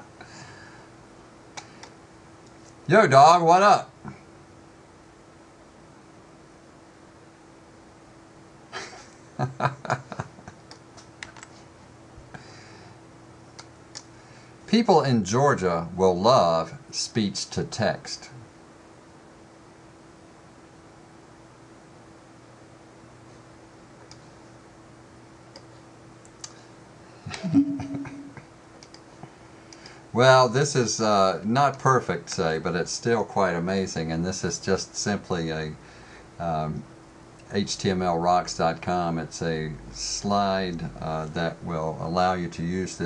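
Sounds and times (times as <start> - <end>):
faint steady hum: 0.0 - 43.0
computer mouse clicks: 28.8 - 29.0.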